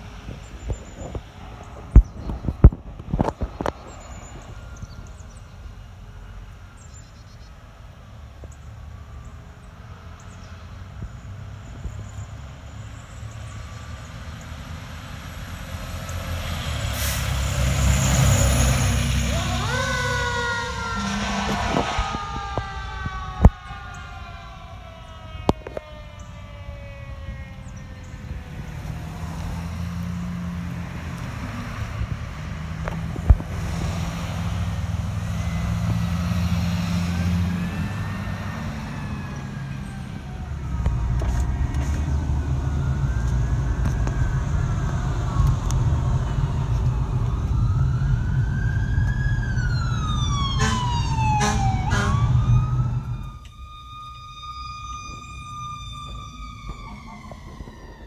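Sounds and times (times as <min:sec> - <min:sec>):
fire engine siren wailing: 0:00.0 - 0:58.0
low engine rumble: 0:00.0 - 0:58.0
road noise inside a car: 0:19.0 - 0:24.1, 0:27.4 - 0:54.2.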